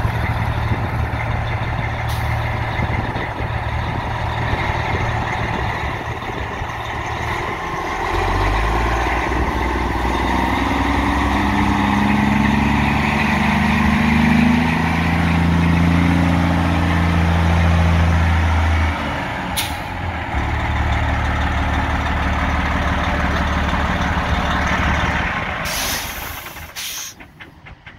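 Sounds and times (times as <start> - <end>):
truck diesel engine: 0.0 - 27.9
air brakes hissing: 19.6 - 20.0, 25.6 - 27.4.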